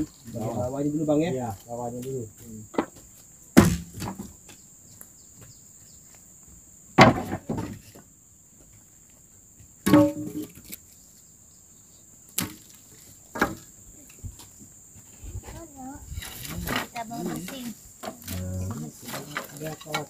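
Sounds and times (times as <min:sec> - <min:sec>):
crickets buzzing: 0:00.0 - 0:20.0
hand tool striking wood: 0:09.8 - 0:10.6.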